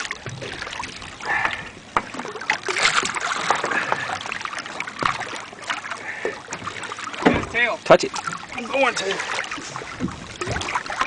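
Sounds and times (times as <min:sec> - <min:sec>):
shark thrashing in water: 0:00.0 - 0:05.5
water splashing against boat hull: 0:00.0 - 0:11.0.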